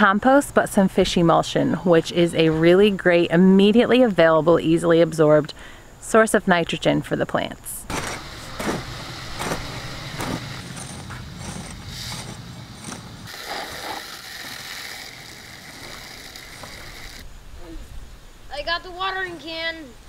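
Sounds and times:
steady high hiss: 0:01.6 - 0:10.7, 0:11.7 - 0:20.0
garden tool scraping into soil: 0:07.9 - 0:17.2.

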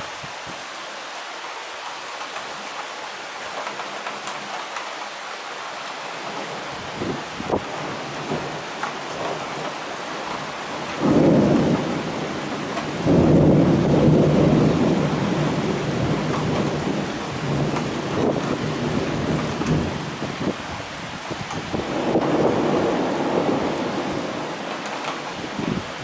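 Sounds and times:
steady heavy rain: 0:00.0 - 0:26.0
thunder rolling: 0:06.3 - 0:20.6, 0:21.5 - 0:26.0.

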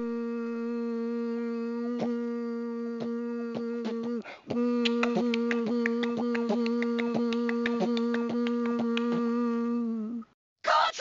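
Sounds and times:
beatboxing hummed note: 0:00.0 - 0:10.2
mouth clicks and pops: 0:03.0 - 0:09.4.

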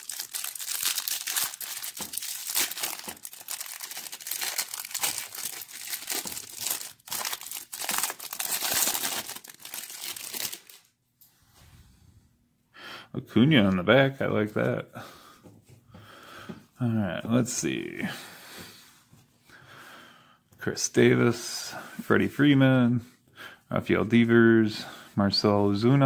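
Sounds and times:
plastic wrapper crinkling and tearing: 0:00.0 - 0:10.9.

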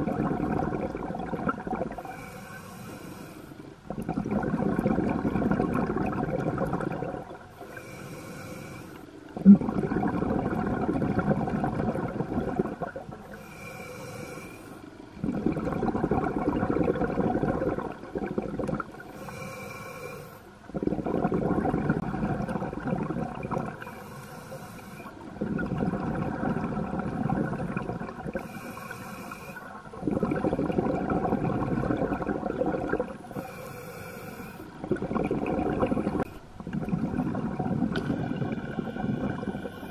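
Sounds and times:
exhaust bubbles rumbling: 0:00.0 - 0:02.1, 0:03.8 - 0:07.6, 0:09.3 - 0:13.3, 0:15.1 - 0:19.2, 0:20.7 - 0:23.9, 0:25.2 - 0:29.0, 0:29.8 - 0:33.6, 0:34.7 - 0:39.9
diver breathing through regulator: 0:01.9 - 0:03.6, 0:07.5 - 0:09.2, 0:13.2 - 0:15.4, 0:19.1 - 0:20.5, 0:23.6 - 0:25.3, 0:28.3 - 0:30.5, 0:33.3 - 0:36.3, 0:37.9 - 0:39.9.

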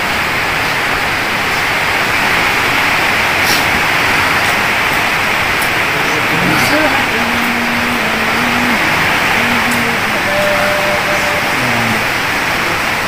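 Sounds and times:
loud steady hiss: 0:00.0 - 0:13.0.

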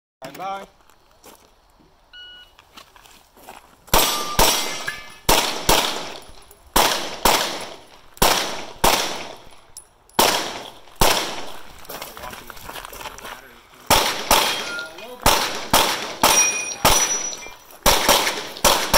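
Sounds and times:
handgun shots with echo: 0:04.0 - 0:09.5, 0:10.2 - 0:11.6, 0:13.9 - 0:18.9.

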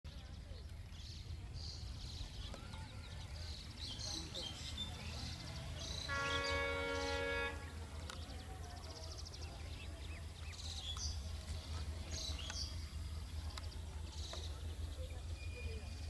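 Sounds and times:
birds chirping: 0:00.1 - 0:16.0
locomotive horn blast: 0:06.0 - 0:07.9
low steady rumble: 0:09.9 - 0:16.0.

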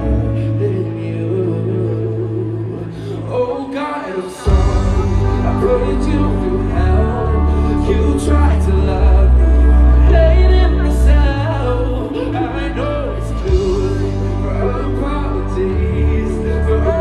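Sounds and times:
live pop band playing: 0:00.0 - 0:17.0
person singing: 0:00.0 - 0:17.0
heavy bass line: 0:04.5 - 0:17.0.

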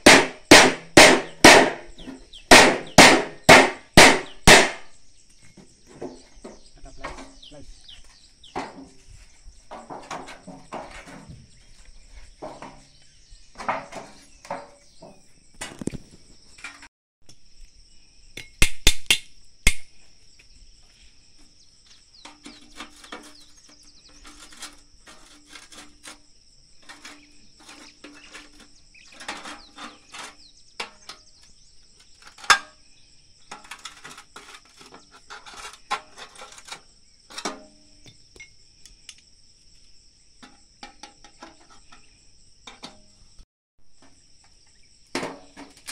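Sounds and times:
knocks and clatter of gutter work: 0:00.0 - 0:04.8, 0:05.5 - 0:16.9, 0:21.4 - 0:32.8, 0:33.4 - 0:38.5, 0:40.4 - 0:43.2, 0:45.1 - 0:45.9
insects trilling: 0:01.1 - 0:43.4, 0:44.0 - 0:45.9.

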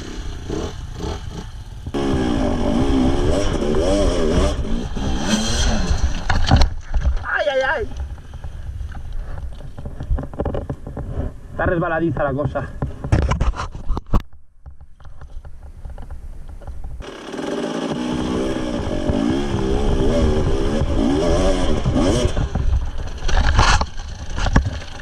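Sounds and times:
motorcycle engine revving: 0:00.0 - 0:06.6, 0:17.0 - 0:25.0.

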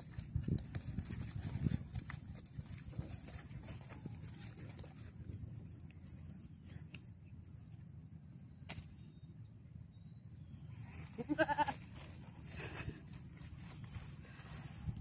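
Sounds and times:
low steady rumble: 0:00.0 - 0:15.0
goat bleating: 0:11.0 - 0:12.0.

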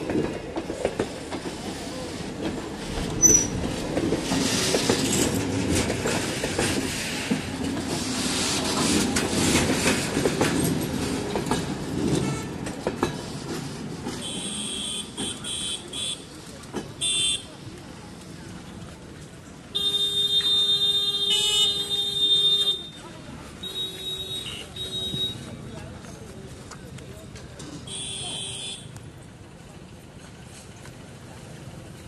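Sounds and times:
train wheels rumbling: 0:00.0 - 0:32.0
high wheel squeal: 0:03.2 - 0:03.6.

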